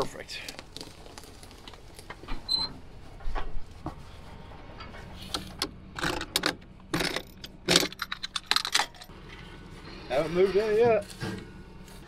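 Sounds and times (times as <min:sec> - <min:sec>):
keys jingling: 0:07.0 - 0:09.1
footsteps through grass: 0:09.2 - 0:12.0.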